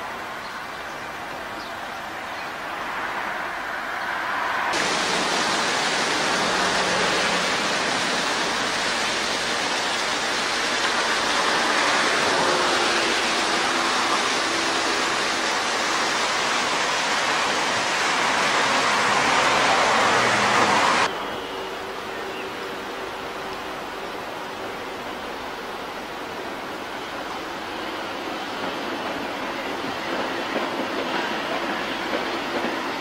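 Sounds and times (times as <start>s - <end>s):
loud rushing hiss: 4.2s - 21.1s.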